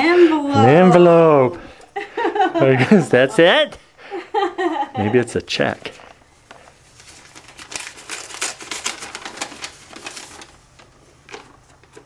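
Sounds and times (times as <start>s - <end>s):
paper envelope tearing: 7.0s - 12.0s.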